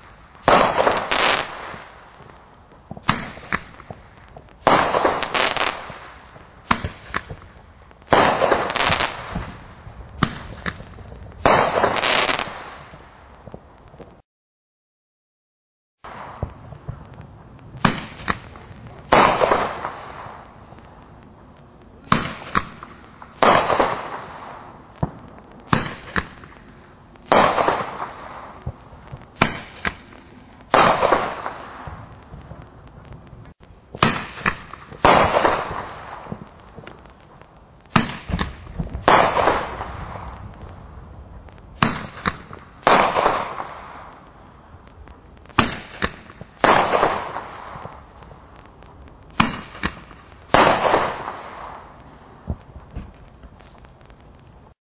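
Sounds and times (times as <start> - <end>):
firework burst: 0.0 - 14.2, 16.0 - 54.7.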